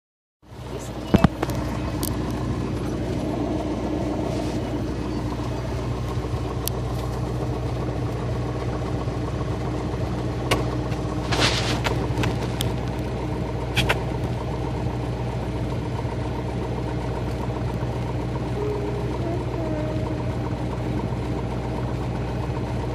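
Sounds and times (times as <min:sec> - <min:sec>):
light aircraft engine droning: 0:00.5 - 0:22.9.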